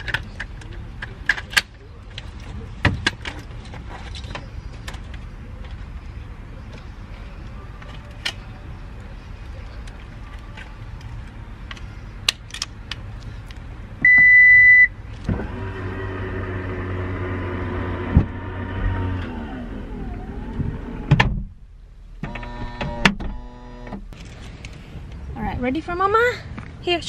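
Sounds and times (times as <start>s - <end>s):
tailgate beep: 14.0s - 15.0s
tailgate motor running: 15.2s - 21.5s, 22.2s - 24.1s.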